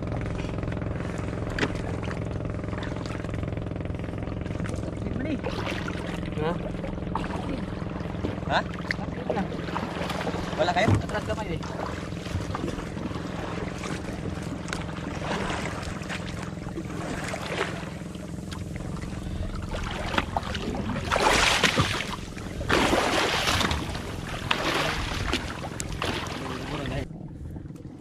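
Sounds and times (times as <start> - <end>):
boat engine humming: 0.0 - 28.0
water splashing against hull: 0.0 - 28.0.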